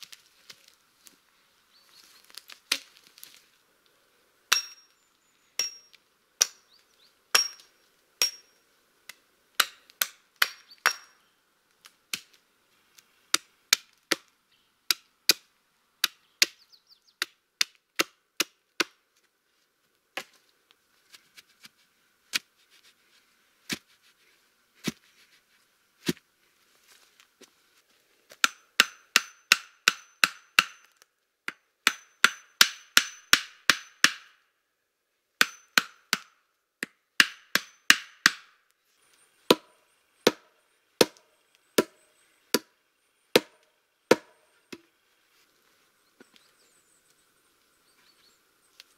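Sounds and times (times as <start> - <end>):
hatchet chopping wood: 4.5 - 4.9, 5.6 - 6.7, 7.3 - 11.2, 13.3 - 14.3, 14.9 - 16.6, 17.2 - 19.0, 28.4 - 34.4, 35.4 - 38.6, 39.5 - 42.7, 43.3 - 44.9.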